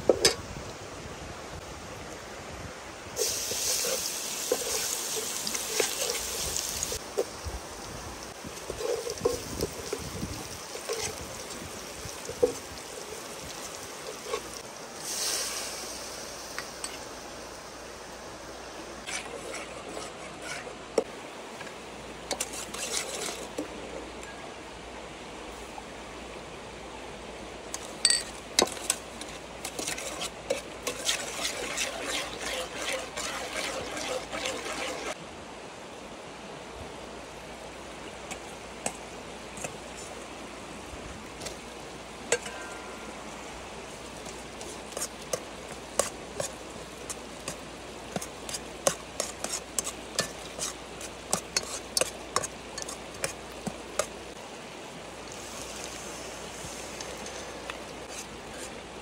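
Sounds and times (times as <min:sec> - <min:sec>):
metal ladle scraping steel pot: 0:03.2 - 0:06.4, 0:19.0 - 0:20.8, 0:22.3 - 0:23.6, 0:28.1 - 0:35.2, 0:48.8 - 0:53.4
food sizzling and bubbling: 0:03.2 - 0:24.2, 0:27.8 - 0:35.2, 0:38.1 - 0:59.0.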